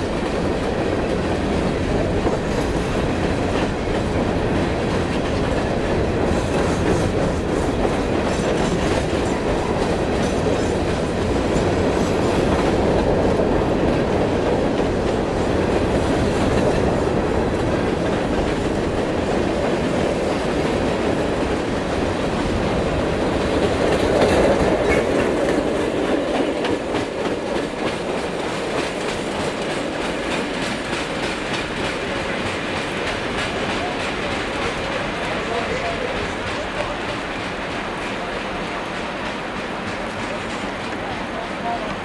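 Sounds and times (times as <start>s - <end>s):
freight train wheels clacking: 0.0s - 42.0s.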